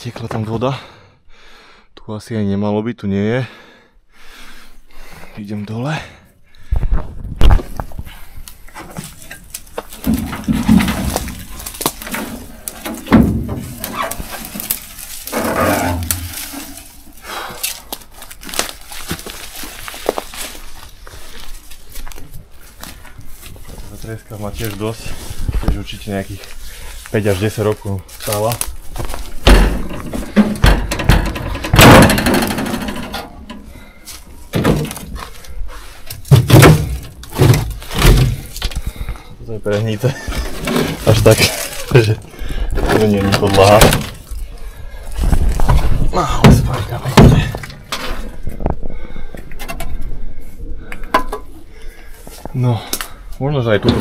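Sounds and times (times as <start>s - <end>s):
heavy thumps: 6.8s - 16.8s, 28.9s - 33.8s, 36.1s - 39.2s, 45.2s - 48.8s
rough crunching scrape: 7.0s - 30.7s, 31.3s - 39.0s, 39.7s - 48.5s
knocks scuffs and clatter: 8.7s - 17.0s, 36.0s - 39.1s, 45.2s - 48.7s
knocks and thuds on truck body: 13.0s - 13.8s, 29.4s - 33.1s, 36.3s - 38.4s, 46.4s - 47.8s.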